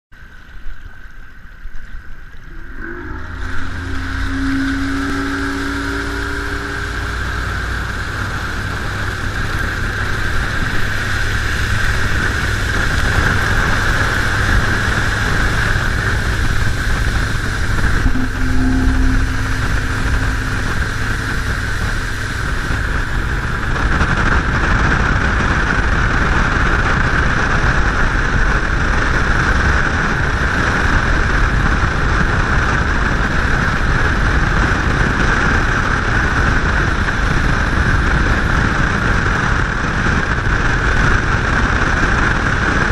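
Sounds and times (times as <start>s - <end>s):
outboard motor drone: 0.2s - 42.9s
water spraying along hull: 0.2s - 42.9s
wind rushing: 2.4s - 32.8s.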